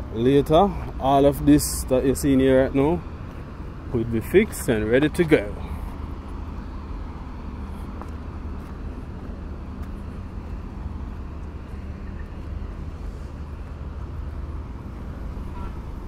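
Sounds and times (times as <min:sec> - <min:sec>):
outdoor background rumble: 0:00.0 - 0:16.0
low engine drone: 0:03.6 - 0:16.0.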